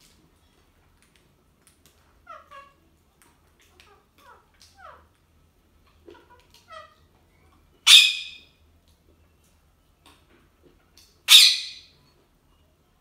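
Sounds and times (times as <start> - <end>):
parrot squawking harshly: 7.9 - 8.4, 11.3 - 11.9.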